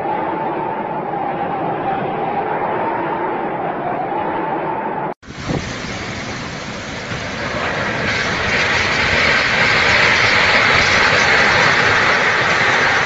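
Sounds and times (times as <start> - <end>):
storm wind blowing hard: 5.2 - 13.0.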